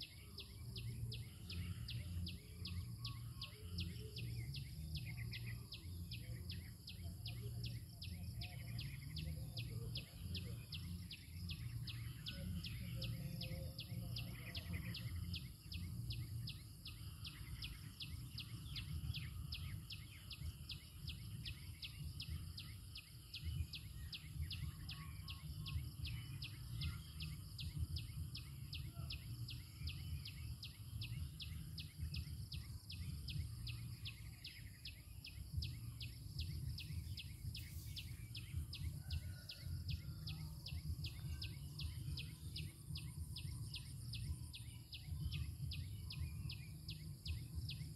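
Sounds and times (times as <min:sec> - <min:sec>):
pulsing insect call: 0:00.0 - 0:47.9
low rumble: 0:35.5 - 0:39.0.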